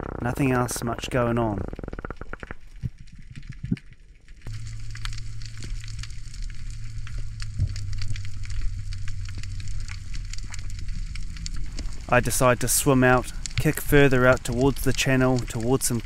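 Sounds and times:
underwater crackling clicks: 0:00.0 - 0:16.0
steady low hum: 0:04.4 - 0:16.0.

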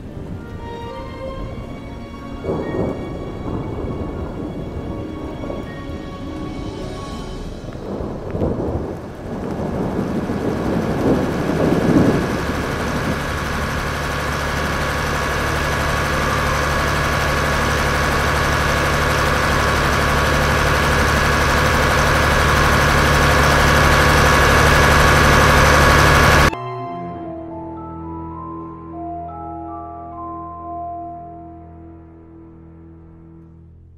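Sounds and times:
rain: 0:00.0 - 0:26.5
thunder rumbling: 0:00.0 - 0:26.6
low hum: 0:00.0 - 0:33.9
dense rushing sound: 0:02.9 - 0:15.8.

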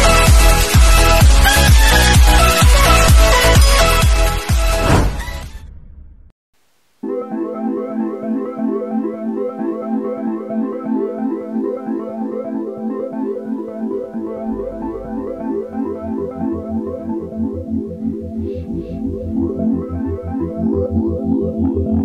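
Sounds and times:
synthesizer keyboard repeating notes: 0:00.0 - 0:04.8, 0:07.0 - 0:22.0
pulsing bass line: 0:00.0 - 0:06.2, 0:13.7 - 0:22.0.

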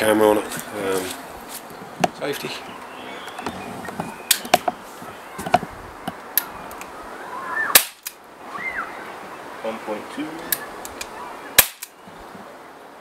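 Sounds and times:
air pistol shot pop: 0:07.7 - 0:08.1, 0:11.6 - 0:11.9
pistol handling clicks: 0:10.5 - 0:12.0.

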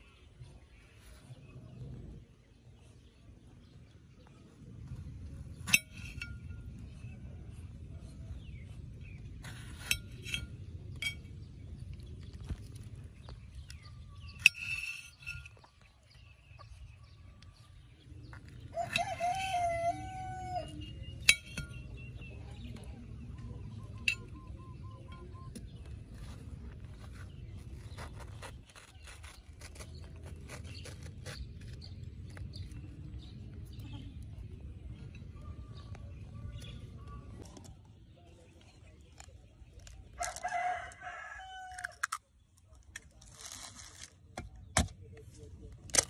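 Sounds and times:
rooster crowing: 0:18.7 - 0:20.8, 0:40.2 - 0:42.0.

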